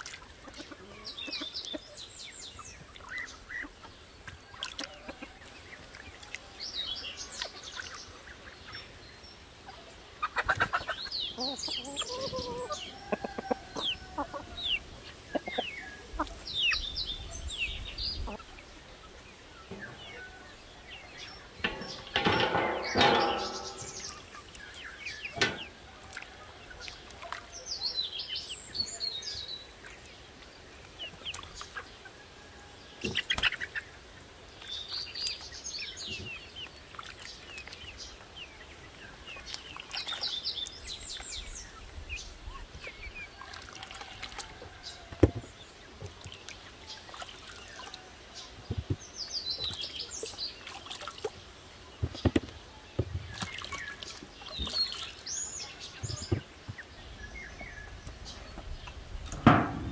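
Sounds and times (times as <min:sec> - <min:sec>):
songbirds chirping: 0:00.0 - 0:59.9
chickens and rooster calling: 0:09.7 - 0:27.9, 0:31.8 - 0:34.4, 0:42.6 - 0:46.0.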